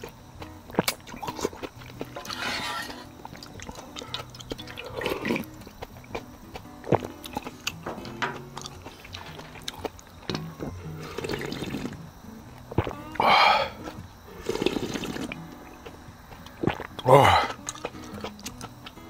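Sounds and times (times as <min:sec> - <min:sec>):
noodles being slurped: 0:00.7 - 0:05.6, 0:11.0 - 0:12.0, 0:13.8 - 0:15.4.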